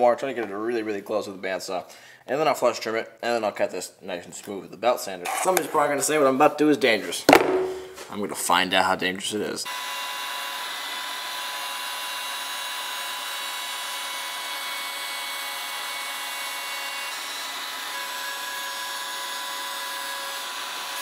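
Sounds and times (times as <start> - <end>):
router whining: 9.7 - 21.0.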